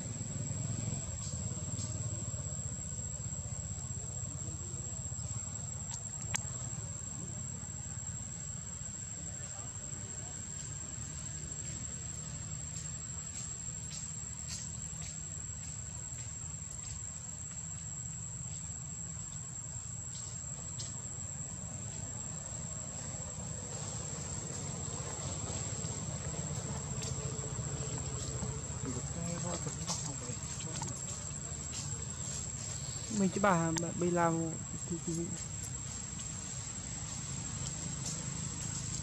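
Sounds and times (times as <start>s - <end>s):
high-pitched insect drone: 0.0s - 39.0s
faint ticks: 5.7s - 6.7s.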